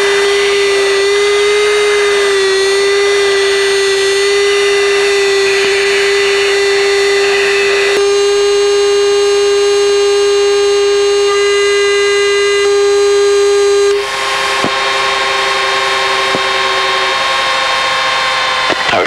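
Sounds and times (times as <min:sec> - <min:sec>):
jet cockpit engine hum: 0:00.0 - 0:19.0.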